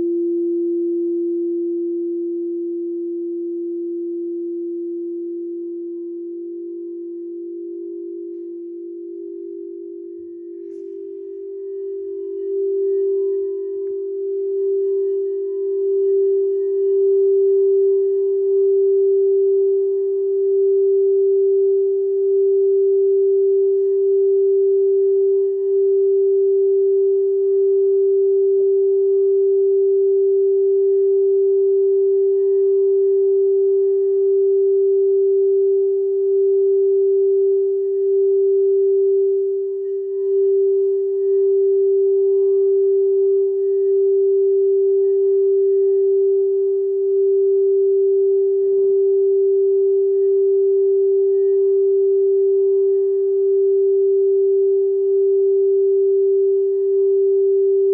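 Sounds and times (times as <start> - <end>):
lower singing bowl tone: 0.0 - 57.9
singing bowl tone: 0.0 - 57.9.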